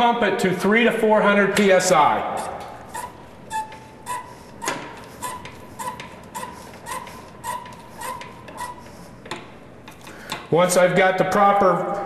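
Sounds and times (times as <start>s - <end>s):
hand pump clicking and squeaking: 2.4s - 10.4s.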